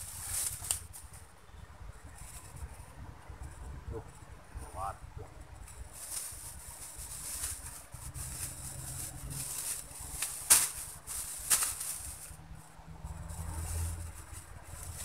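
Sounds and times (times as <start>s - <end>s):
leaves and stems rustling: 0.0s - 15.0s
sharp snaps of stems: 10.2s - 10.8s.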